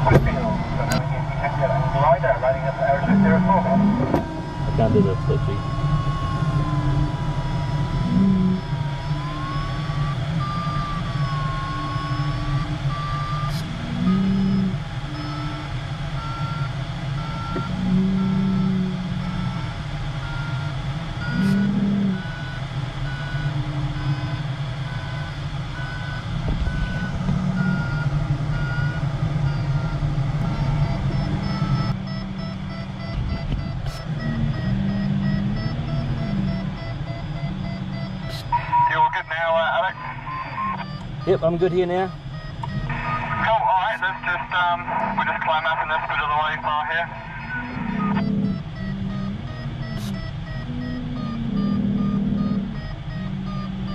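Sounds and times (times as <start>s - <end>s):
short low-pitched tones: 0.0s - 16.3s, 39.9s - 53.9s
variometer tone and beeps: 0.0s - 53.9s.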